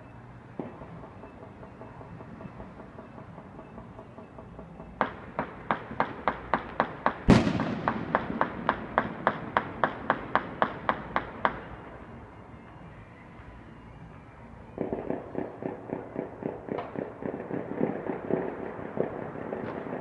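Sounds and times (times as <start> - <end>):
gunshots: 5.0 - 11.7
loud bang with rumbling echo: 7.3 - 10.4.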